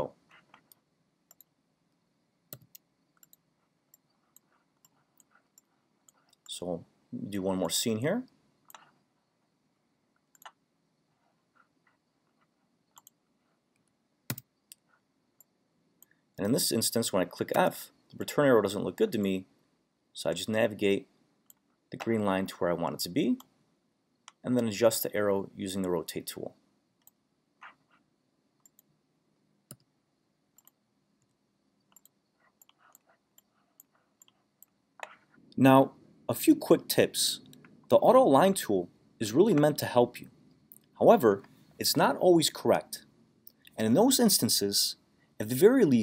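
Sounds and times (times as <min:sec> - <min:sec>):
computer mouse clicks: 0:02.5 - 0:06.5, 0:08.7 - 0:08.9, 0:10.3 - 0:10.6, 0:12.9 - 0:13.2, 0:28.6 - 0:28.9, 0:29.7 - 0:29.9, 0:30.6 - 0:35.2.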